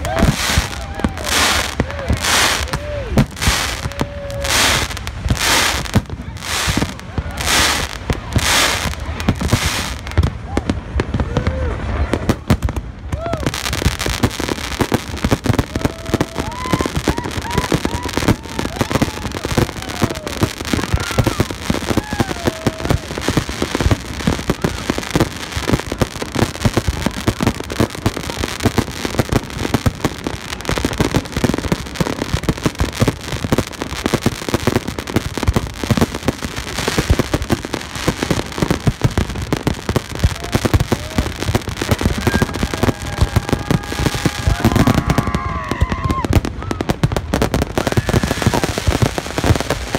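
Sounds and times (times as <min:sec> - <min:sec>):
fireworks bangs and crackles: 0:00.0 - 0:49.9.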